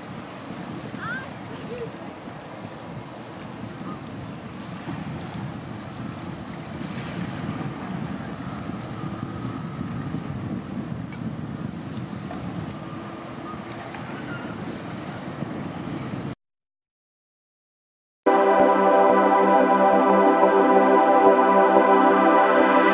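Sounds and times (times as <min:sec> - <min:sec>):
water: 0:00.0 - 0:16.4
wind on the microphone: 0:00.0 - 0:16.4.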